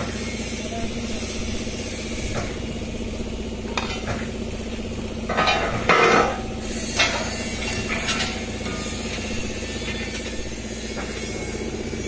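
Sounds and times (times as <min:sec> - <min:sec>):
steady machine hum: 0:00.0 - 0:12.0
welding arc crackling sizzle: 0:00.0 - 0:12.0.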